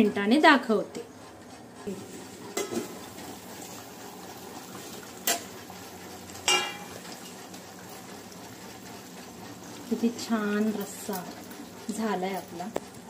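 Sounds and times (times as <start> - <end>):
curry simmering: 1.9 - 13.0
steel lid knocking on pot: 6.4 - 7.0.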